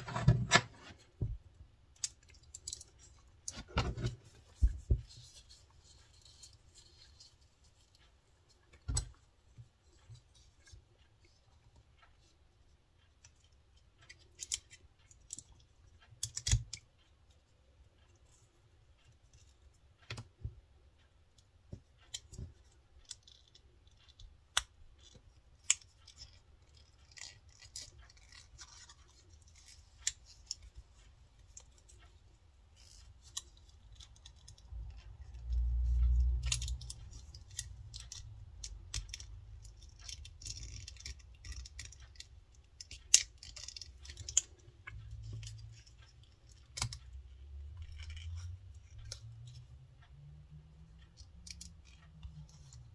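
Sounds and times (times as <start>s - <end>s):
metallic clicks of binder clip: 14.1s - 16.9s, 32.8s - 47.1s.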